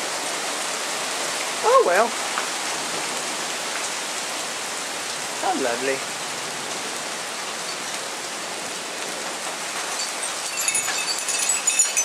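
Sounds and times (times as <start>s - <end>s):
hail and heavy rain: 0.0s - 12.0s
wind chime ringing: 9.8s - 12.0s.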